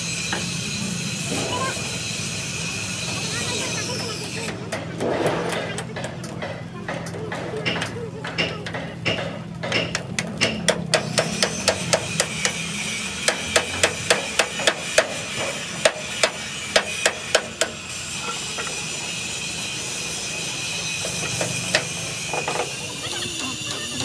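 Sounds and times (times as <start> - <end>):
hammer striking steel: 4.4 - 17.9.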